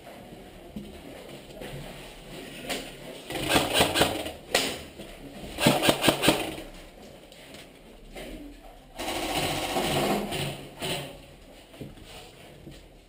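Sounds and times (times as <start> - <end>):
airsoft guns firing: 3.3 - 4.8, 5.6 - 6.7, 9.0 - 10.5.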